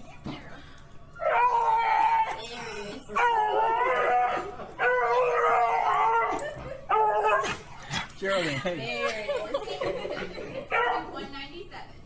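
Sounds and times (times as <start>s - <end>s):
dog howling: 1.2s - 7.6s.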